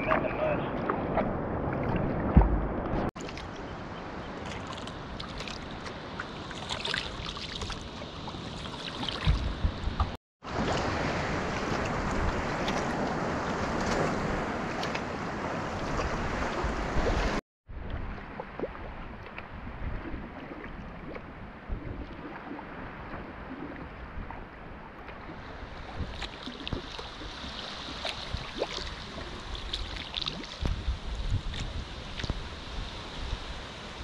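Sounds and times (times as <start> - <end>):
choppy sea: 0.0 - 34.0
water lapping with splashes: 0.0 - 34.0
rush of wind: 7.8 - 34.0.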